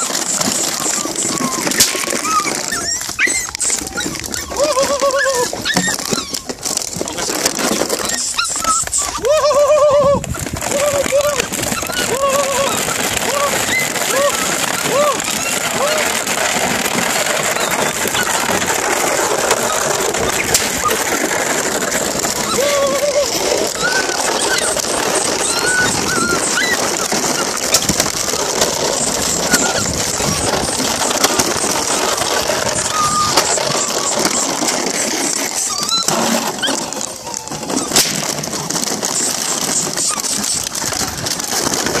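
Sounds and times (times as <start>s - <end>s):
high squeaks: 0.0s - 42.0s
plastic bottles crackling: 0.0s - 42.0s
sharp clack: 37.8s - 40.7s.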